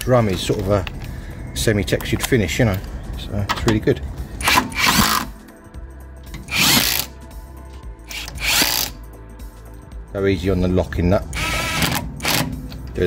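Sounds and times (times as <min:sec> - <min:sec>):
power driver spinning bolts: 0:04.4 - 0:05.3, 0:06.3 - 0:07.1.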